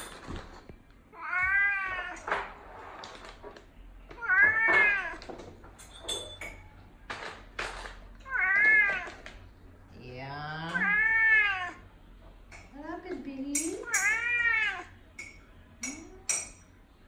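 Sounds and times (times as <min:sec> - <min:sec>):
cat meowing: 0:01.1 - 0:02.3, 0:04.1 - 0:05.2, 0:08.2 - 0:09.2, 0:10.7 - 0:11.8, 0:13.8 - 0:15.0.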